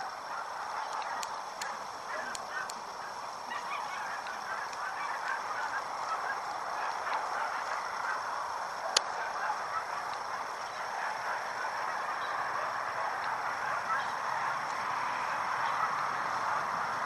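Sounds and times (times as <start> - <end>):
flock of birds chattering: 0.0 - 17.0
faint clicks: 0.7 - 6.2, 8.8 - 9.2, 10.0 - 10.8.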